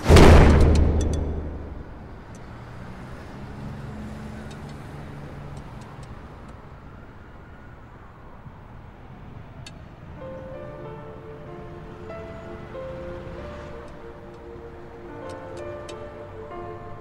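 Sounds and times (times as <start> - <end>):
deep boom: 0.0 - 2.4
low steady rumble: 0.0 - 2.5.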